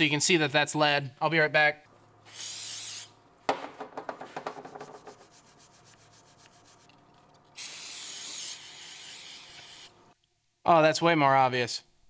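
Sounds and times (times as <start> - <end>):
aerosol spray can hissing: 2.3 - 3.2, 7.6 - 10.0.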